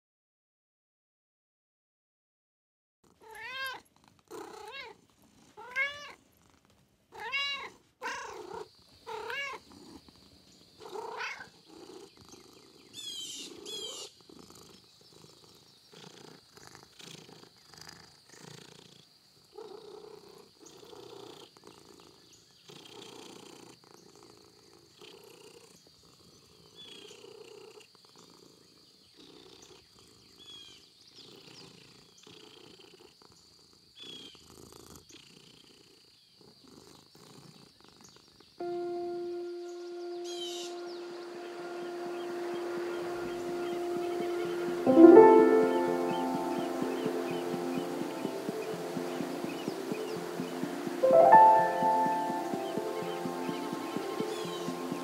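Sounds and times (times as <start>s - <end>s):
soft rhythmic cat sounds: 3.0s - 55.0s
cats meowing: 3.2s - 3.8s, 7.2s - 9.6s.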